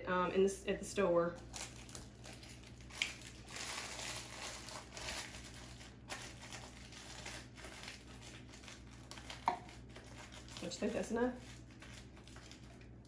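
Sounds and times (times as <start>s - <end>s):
packaging crinkling and rustling: 1.4s - 13.0s.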